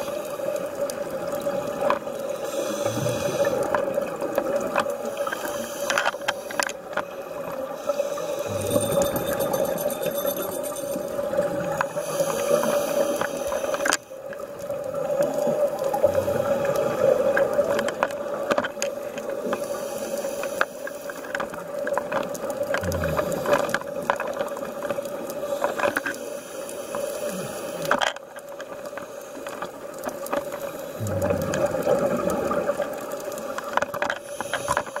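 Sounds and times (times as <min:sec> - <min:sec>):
regulator bubbles exhaled underwater: 0:07.3 - 0:12.7, 0:14.3 - 0:18.5, 0:22.4 - 0:25.6, 0:30.6 - 0:35.0.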